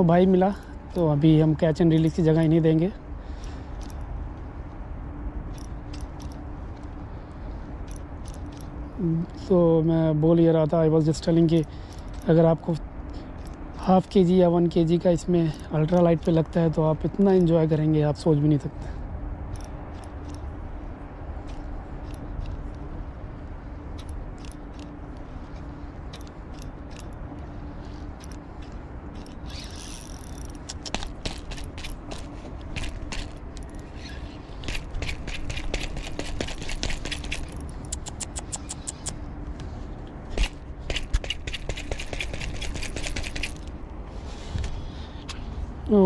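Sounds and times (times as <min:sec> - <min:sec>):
fishing reel clicking: 0:29.1 - 0:32.0.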